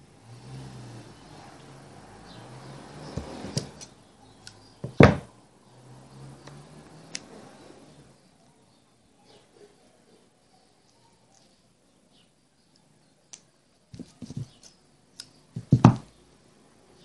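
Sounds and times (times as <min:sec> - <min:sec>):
loud knock: 0:04.8 - 0:05.3.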